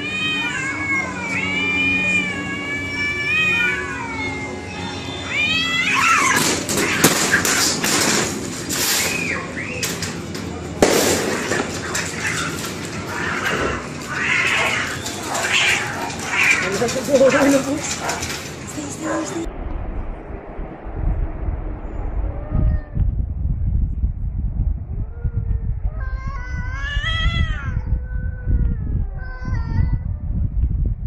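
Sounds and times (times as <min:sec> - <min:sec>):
cats yowling: 0:00.0 - 0:08.1, 0:11.2 - 0:19.5, 0:22.4 - 0:23.0, 0:25.1 - 0:30.1
cats screeching and scuffling: 0:00.0 - 0:19.5, 0:25.9 - 0:30.1
sharp bang: 0:10.8 - 0:12.4.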